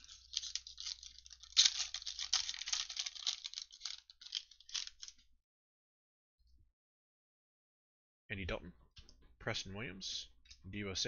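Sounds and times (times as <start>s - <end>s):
foil wrapper crinkling and tearing: 0.0s - 5.2s.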